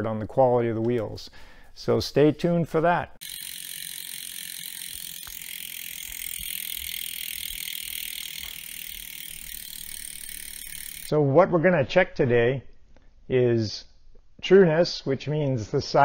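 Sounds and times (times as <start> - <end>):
bicycle freewheel ticking buzz: 3.2 - 11.1.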